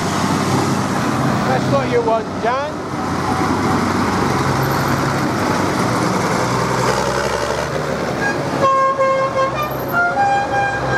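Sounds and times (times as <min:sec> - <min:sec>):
tractor engine passing: 0:00.0 - 0:08.6
vehicle horns tooting: 0:08.2 - 0:10.9.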